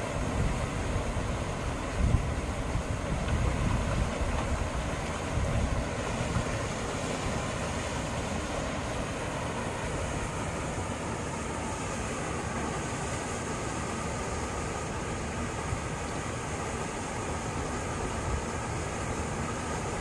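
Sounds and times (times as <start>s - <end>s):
water rushing over a weir: 0.0s - 20.0s
wind gusting on microphone: 0.1s - 8.9s.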